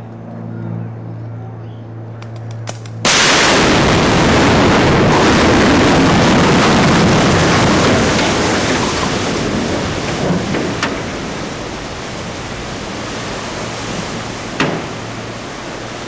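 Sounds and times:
loud rumbling blast: 2.7 - 16.0
demolition charges cracking: 3.0 - 13.2.

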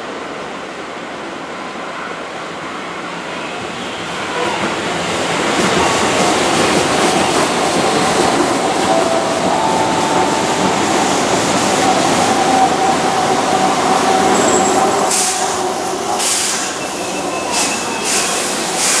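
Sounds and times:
electric train rolling past: 0.0 - 19.0
train cars clattering: 5.2 - 19.0
train wheels squealing: 8.9 - 19.0.

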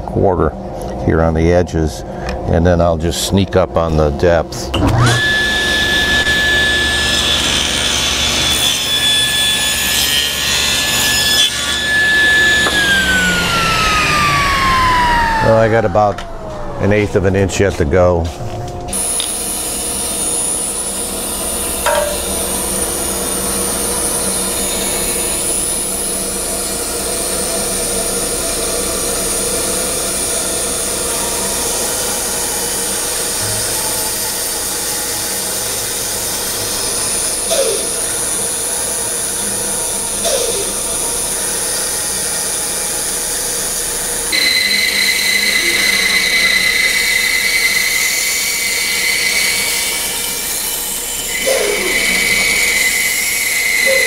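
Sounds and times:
bandsaw cutting wood: 4.7 - 18.1, 18.9 - 54.0
high steady whine: 12.6 - 25.8.

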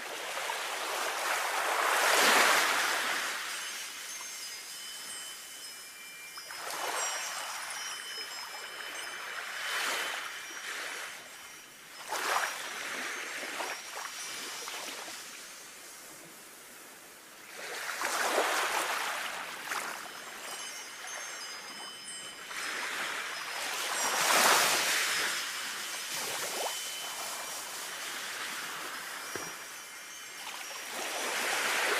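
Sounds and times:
wind chime ringing: 1.6 - 16.1, 17.4 - 31.9
sea waves washing: 22.4 - 31.9.

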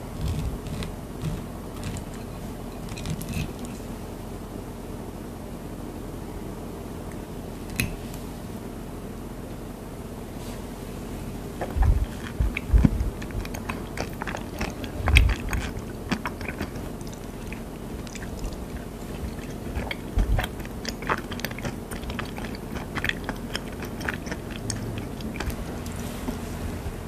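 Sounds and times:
chewing crunchy food: 0.0 - 4.0, 11.6 - 27.0.

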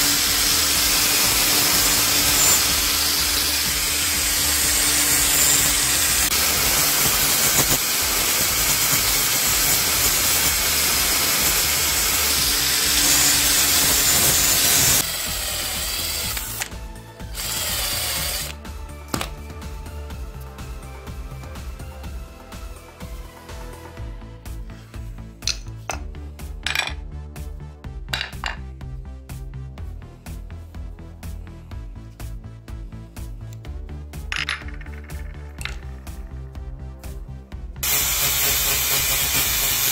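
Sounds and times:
angle grinder grinding metal: 0.0 - 19.3, 37.8 - 39.9
background music with beat: 0.0 - 39.9
hammer clattering on stone floor: 19.1 - 19.4, 25.4 - 27.1, 28.1 - 28.7, 34.3 - 36.2.

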